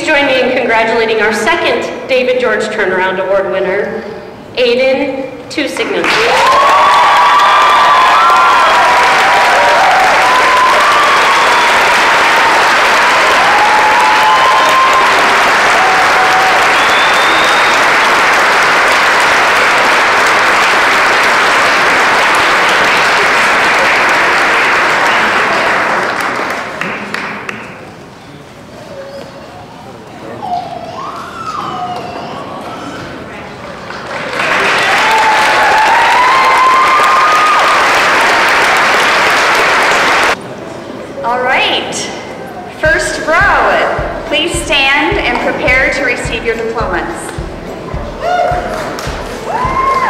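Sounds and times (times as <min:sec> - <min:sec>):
crowd applauding: 0:06.0 - 0:28.0, 0:33.0 - 0:40.4, 0:47.3 - 0:50.0.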